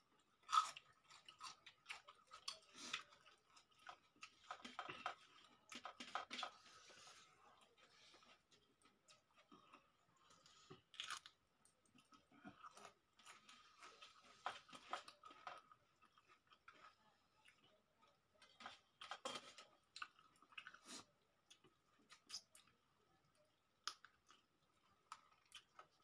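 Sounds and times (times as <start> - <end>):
chewing and mouth clicks: 0.2 - 6.6, 19.8 - 22.8, 23.8 - 26.0.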